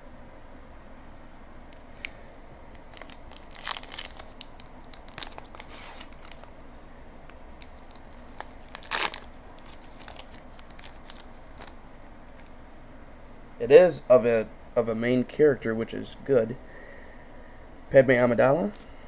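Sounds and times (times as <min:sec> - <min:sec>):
card pack wrapper crinkling: 0:01.8 - 0:12.6.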